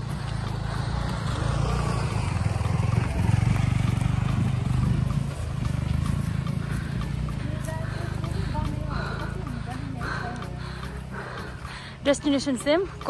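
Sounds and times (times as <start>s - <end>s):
motorcycle engine passing: 0.0s - 13.0s.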